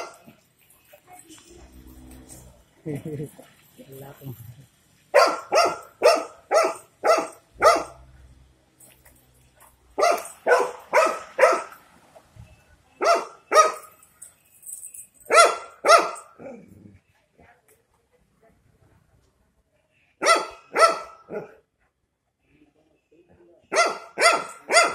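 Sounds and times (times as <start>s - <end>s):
dog barking: 5.2s - 8.0s, 10.0s - 11.8s, 13.0s - 13.9s, 15.3s - 16.7s, 20.2s - 21.6s, 23.7s - 24.9s.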